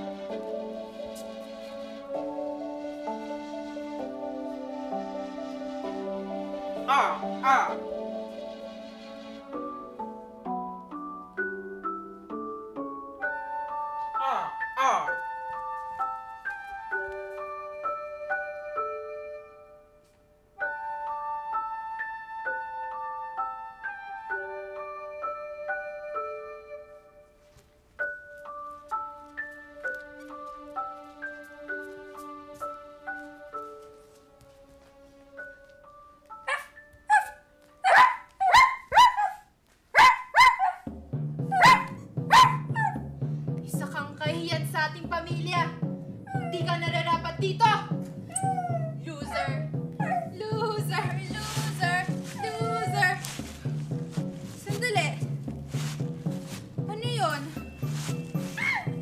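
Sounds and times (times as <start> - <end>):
low background music chord: 0.0 - 20.0, 40.9 - 59.0
slow piano melody: 0.0 - 38.2
dog barking: 6.8 - 7.8, 36.5 - 40.9, 41.5 - 43.0, 50.0 - 50.3.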